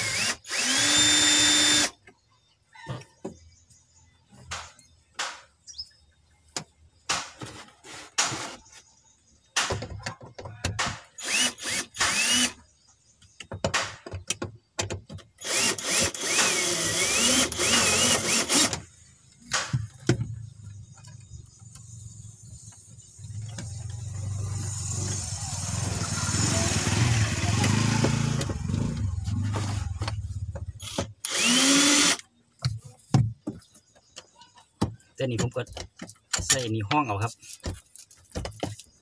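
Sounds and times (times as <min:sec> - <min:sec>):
cordless drill motor whine: 0:00.0 - 0:01.9, 0:11.2 - 0:12.6, 0:15.4 - 0:18.8, 0:30.8 - 0:32.2.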